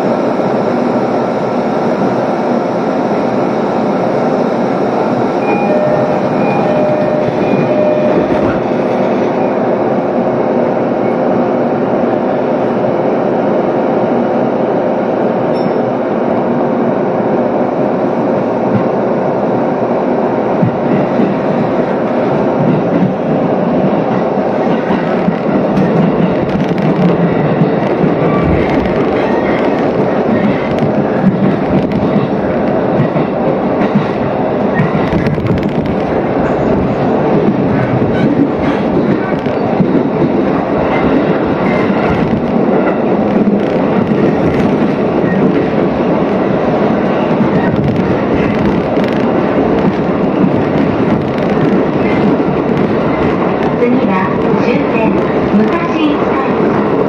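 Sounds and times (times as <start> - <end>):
train hum: 0.0 - 57.0
short beeps: 5.4 - 8.4
train wheels clattering on rails: 17.2 - 57.0.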